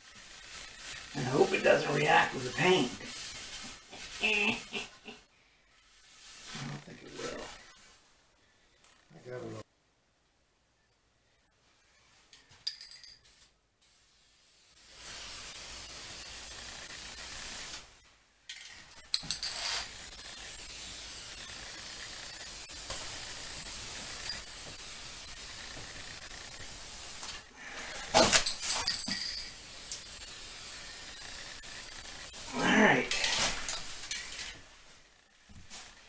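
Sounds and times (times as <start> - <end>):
aerosol can spraying: 0.0 - 4.9, 13.2 - 18.0, 19.0 - 34.6.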